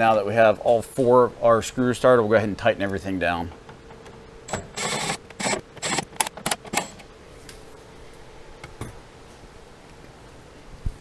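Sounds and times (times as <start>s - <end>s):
cordless drill driving screws: 4.5s - 7.0s.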